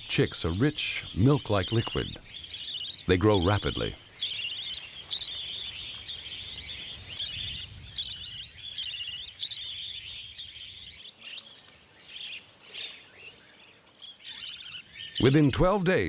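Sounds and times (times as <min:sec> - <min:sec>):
budgerigars chirping: 0:00.0 - 0:15.8.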